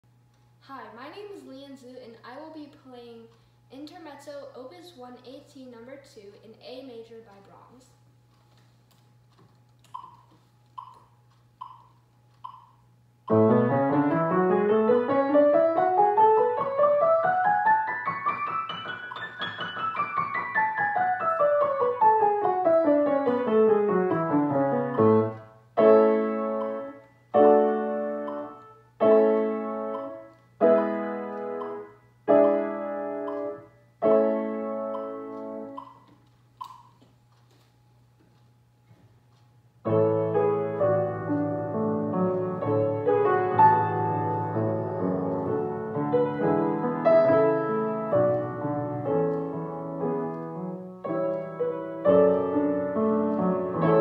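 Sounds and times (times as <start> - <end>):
grand piano playing: 13.2 - 35.9, 39.8 - 54.0.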